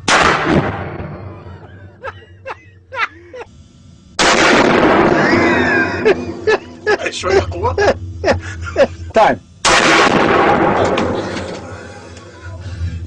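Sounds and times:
rifle shots in a small room: 0.0 - 1.4, 4.1 - 5.7, 9.6 - 11.8.

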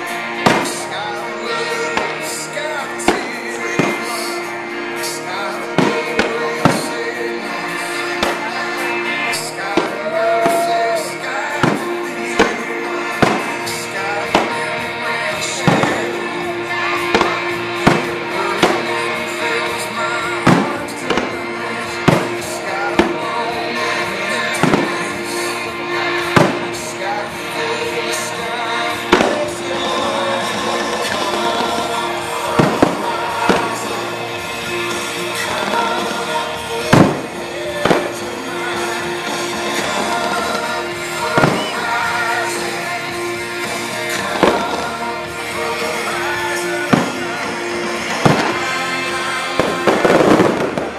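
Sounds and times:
fireworks bursting with sharp bangs: 0.0 - 50.9
loud music: 0.0 - 50.9.

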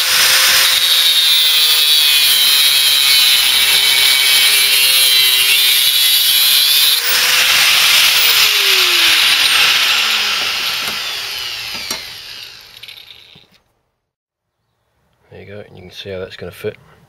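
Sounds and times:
angle grinder cutting sheet metal: 0.0 - 13.6
grinder winding down whine: 0.0 - 13.6.

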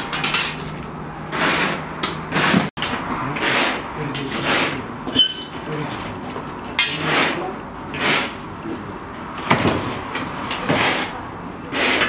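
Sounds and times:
metal rods scraping inside clay oven: 1.3 - 8.4, 10.2 - 12.0.

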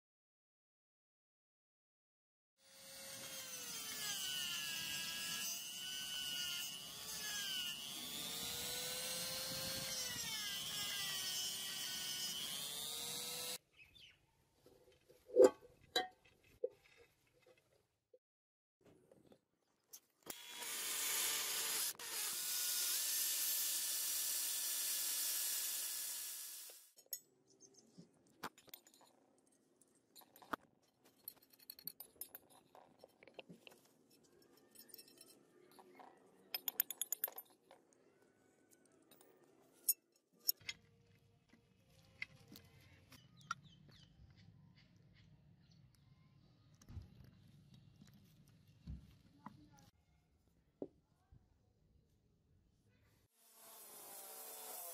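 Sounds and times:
electric drill boring metal: 2.6 - 13.6, 20.3 - 26.9, 53.4 - 54.9
small parts clicking: 31.2 - 37.9.

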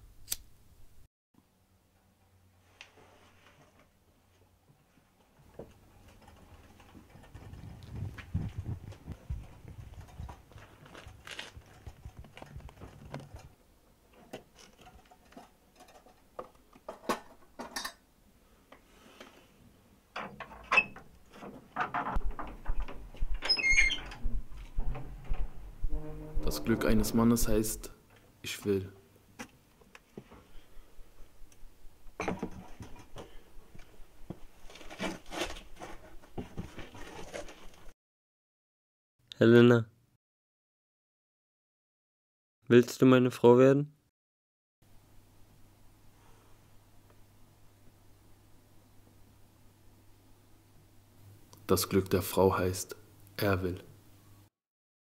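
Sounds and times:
rustling and scraping: 2.6 - 17.8, 21.2 - 27.8, 32.2 - 37.9
low hum: 22.2 - 28.0.

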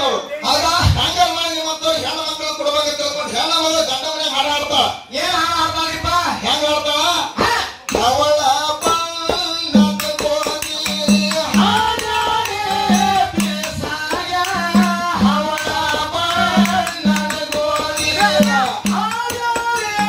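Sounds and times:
man singing: 5.1 - 20.0
drum beat: 7.4 - 20.0
small hand cymbals clashing: 8.8 - 20.0.

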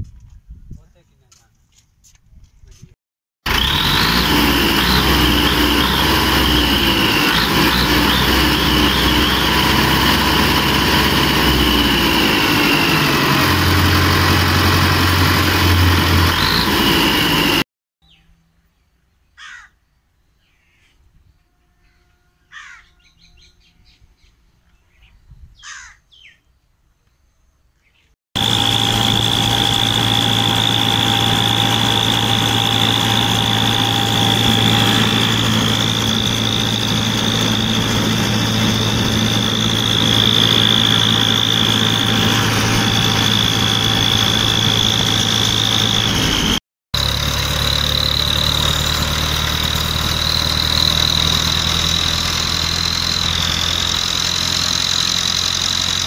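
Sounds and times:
tractor diesel engine running: 3.4 - 17.7, 28.4 - 56.0
crows cawing: 19.4 - 19.8, 22.5 - 22.9, 25.6 - 26.0.

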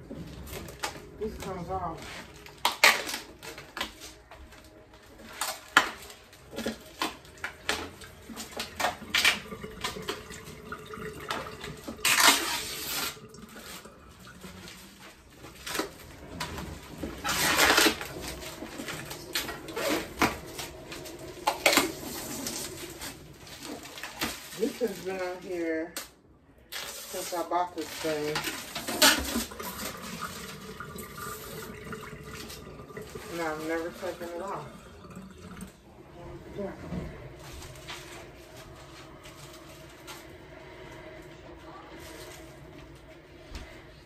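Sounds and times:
household items clicking and clattering: 0.0 - 26.1, 26.7 - 35.8.

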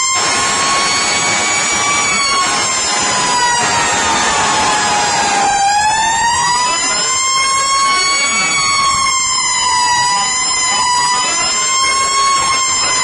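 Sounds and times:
electronic siren sweeping tones: 0.0 - 13.0
mechanical siren wailing: 0.0 - 13.0.

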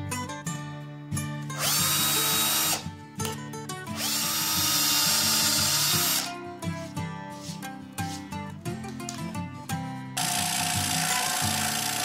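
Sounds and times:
music with plucked strings: 0.0 - 12.0
cordless drill boring into wood: 1.6 - 2.8, 4.0 - 6.3, 10.2 - 12.0.

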